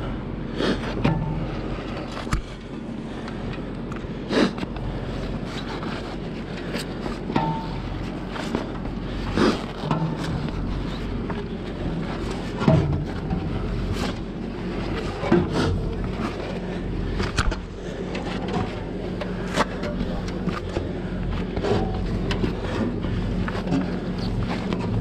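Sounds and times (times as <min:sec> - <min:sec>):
truck engine running: 0:00.0 - 0:25.0
knocks and clicks on ladder rungs: 0:05.7 - 0:09.0, 0:09.6 - 0:25.0.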